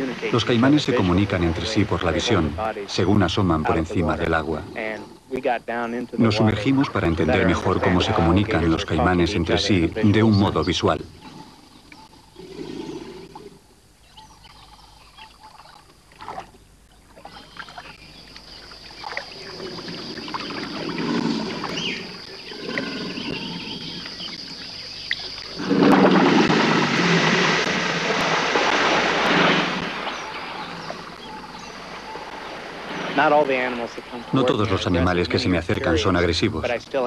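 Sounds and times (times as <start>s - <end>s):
water splashing from wading: 15.2s - 34.5s.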